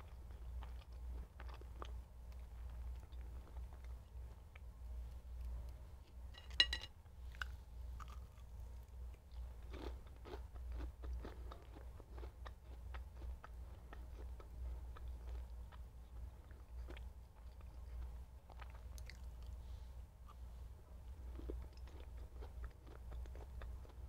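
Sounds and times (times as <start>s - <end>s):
person chewing food: 0.0s - 6.7s, 7.3s - 19.6s, 21.1s - 24.0s
fork clinking on a plate: 6.4s - 6.9s.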